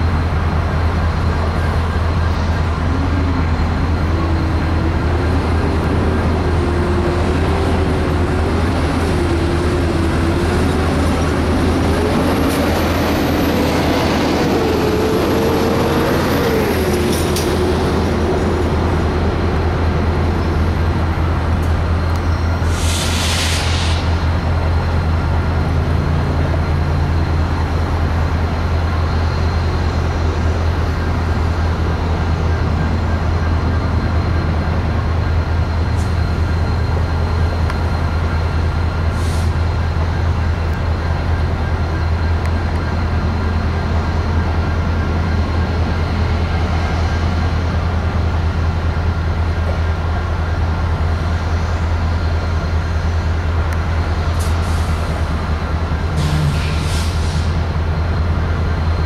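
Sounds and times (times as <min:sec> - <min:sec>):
short hiss: 0:22.7 - 0:24.2.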